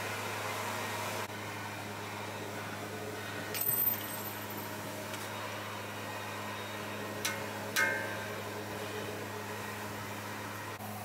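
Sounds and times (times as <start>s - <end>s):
light ringing clinks: 3.6s - 4.7s.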